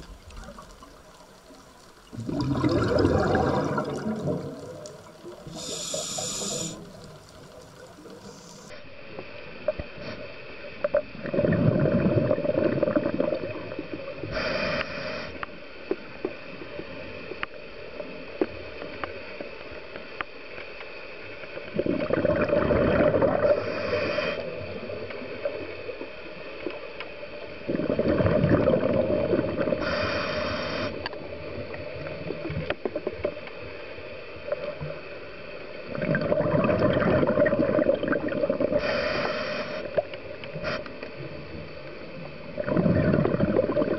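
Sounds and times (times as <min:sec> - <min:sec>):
bubbling exhaled air underwater: 0:02.0 - 0:08.7, 0:10.9 - 0:14.6, 0:21.7 - 0:25.6, 0:27.6 - 0:30.2, 0:35.8 - 0:39.2, 0:42.4 - 0:43.9
regulator inhalation hiss: 0:05.4 - 0:07.2, 0:08.2 - 0:08.8, 0:14.2 - 0:15.5, 0:23.5 - 0:24.6, 0:29.8 - 0:31.1, 0:38.7 - 0:40.0.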